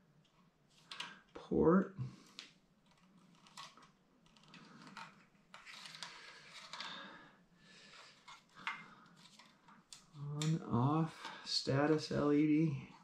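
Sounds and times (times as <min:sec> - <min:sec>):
hands handling plastic parts: 0:00.2 - 0:01.3, 0:02.3 - 0:07.0, 0:07.9 - 0:10.6.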